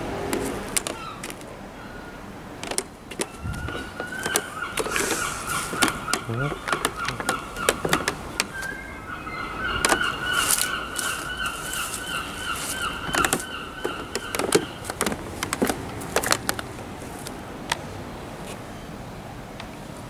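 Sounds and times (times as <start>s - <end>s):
camera handling knocks and rustles: 2.6s - 8.8s, 13.0s - 17.8s.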